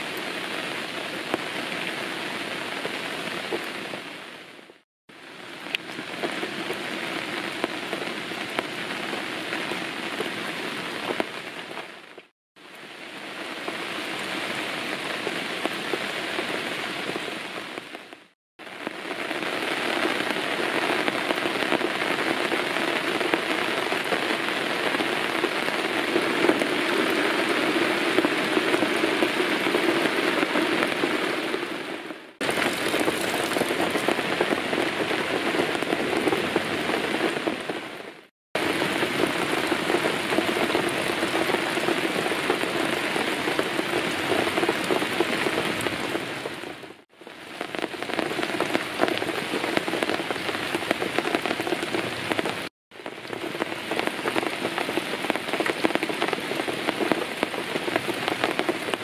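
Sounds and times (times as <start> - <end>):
steady rain falling: 0.0 - 59.0.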